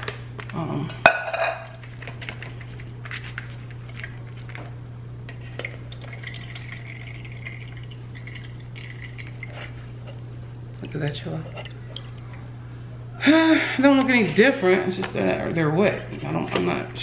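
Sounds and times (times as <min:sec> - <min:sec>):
steady low hum: 0:00.0 - 0:17.0
liquid trickling through colander: 0:05.4 - 0:10.2, 0:10.8 - 0:12.6.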